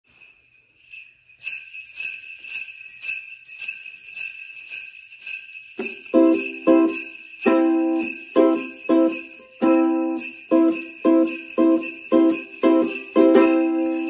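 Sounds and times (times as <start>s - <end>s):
sleigh bells shaken: 0.0s - 14.0s
ukulele chords strummed: 6.2s - 14.0s.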